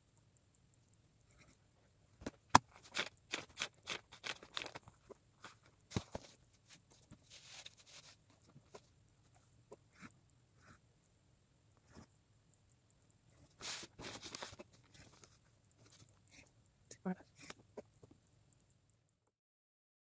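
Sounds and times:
paper rustling: 2.6 - 8.9, 13.6 - 16.0
paper sliding rustle: 5.4 - 8.8, 13.6 - 16.0.

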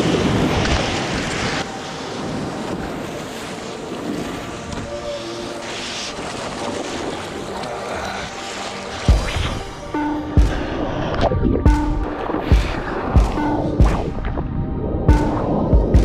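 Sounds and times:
surf splashing: 0.0 - 14.2.

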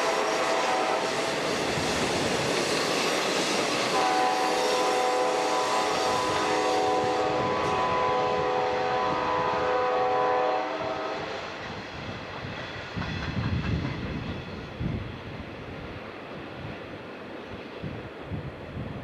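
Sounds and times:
locomotive horn: 0.0 - 1.2, 3.9 - 11.4
train wheels rumbling and clacking: 0.0 - 18.8.

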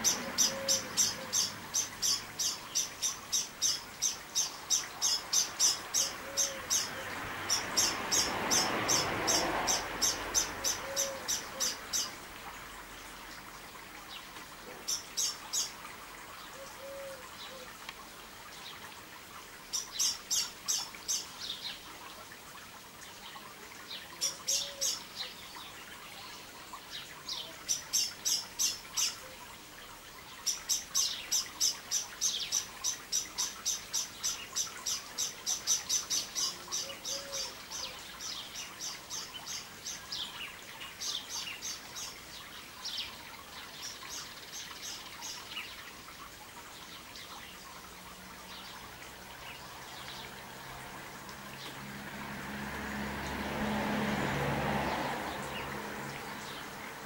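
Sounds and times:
small birds chirping: 0.0 - 12.2, 14.0 - 18.9, 30.2 - 46.0
faint steady background hiss: 0.0 - 53.2.

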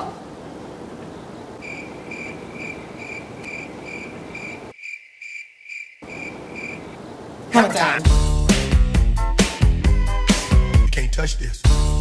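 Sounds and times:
faint background hiss: 0.0 - 4.8, 6.0 - 8.1
cricket chirping: 1.6 - 7.4.

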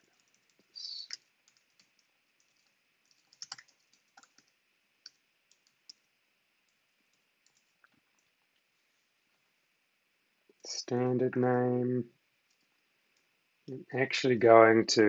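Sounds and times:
keyboard typing: 0.0 - 6.1, 6.7 - 7.8.

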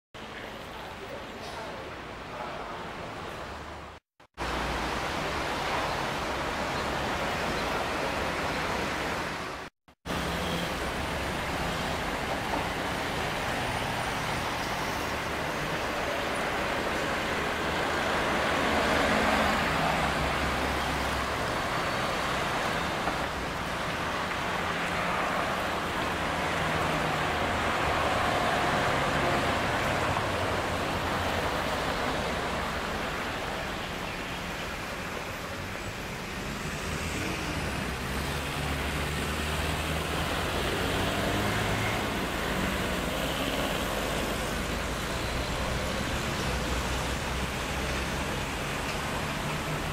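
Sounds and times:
cars passing on city street: 0.2 - 49.9.

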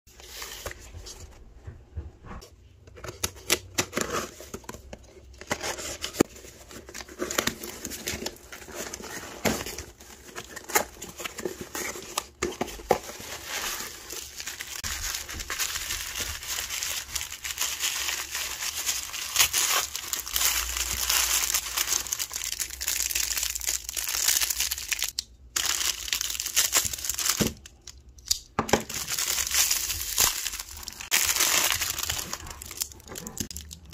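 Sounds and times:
tissue paper crinkling: 5.5 - 25.0, 28.9 - 33.7.

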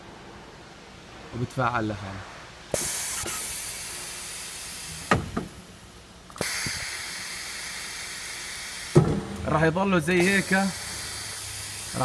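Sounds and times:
compressed air hissing: 2.7 - 9.4, 10.0 - 12.0.

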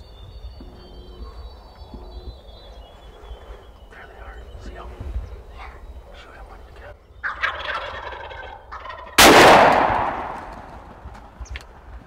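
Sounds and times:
turkey gobbling: 6.8 - 9.4
loud shotgun shot: 9.2 - 10.9.

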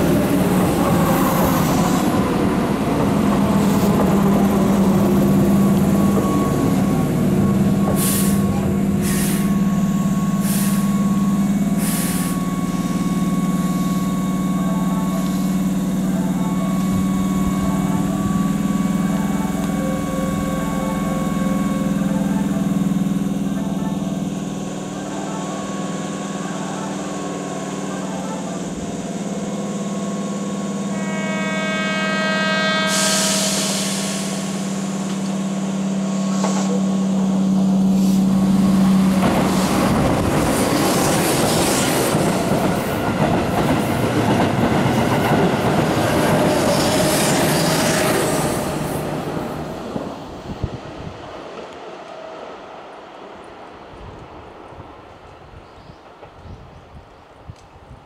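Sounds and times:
train wheels rumbling on rails: 0.0 - 30.7, 32.9 - 52.2
electric train horn: 6.0 - 22.8, 25.0 - 39.1.

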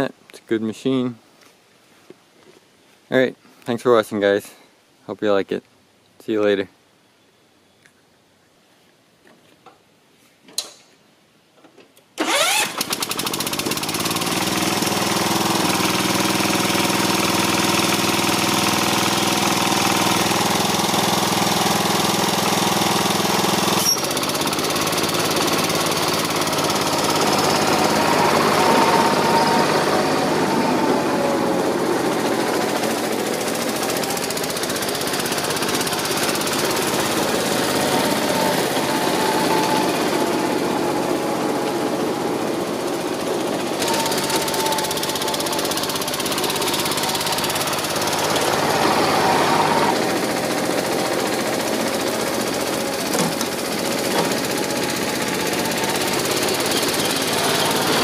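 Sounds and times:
lawn tractor engine running: 12.2 - 58.0.

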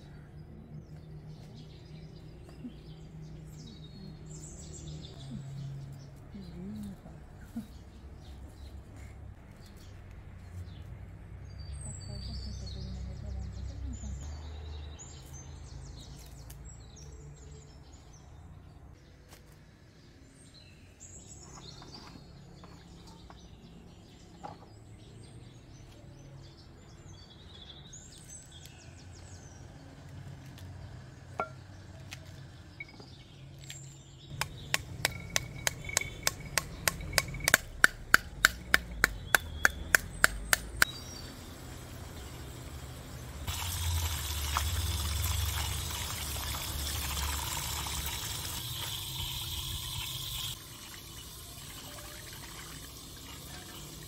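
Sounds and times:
birds chirping: 0.0 - 18.9, 30.8 - 54.0
pomegranate being beaten: 34.3 - 40.9
water splashing in colander: 41.2 - 54.0.

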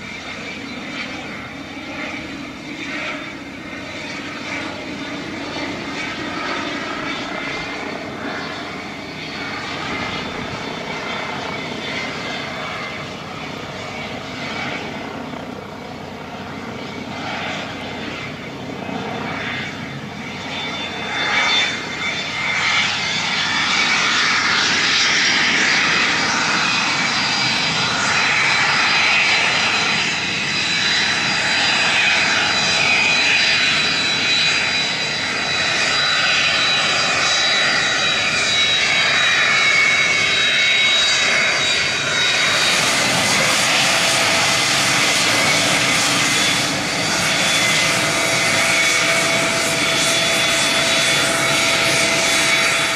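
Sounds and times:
jet taxiing with high whine: 0.0 - 52.9.

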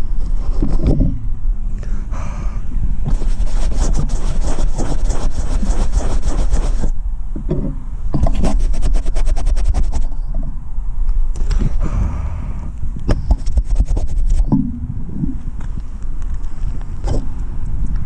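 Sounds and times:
wind rumble on microphone: 0.0 - 18.0
camera scratching against jacket: 3.1 - 7.0, 8.2 - 10.2, 13.3 - 14.5.

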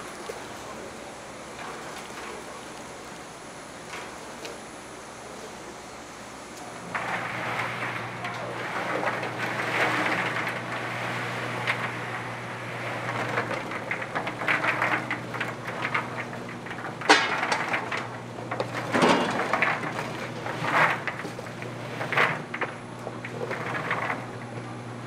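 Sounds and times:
motor hum: 0.0 - 25.0
dough tumbling and rattling in drum: 6.6 - 25.0.

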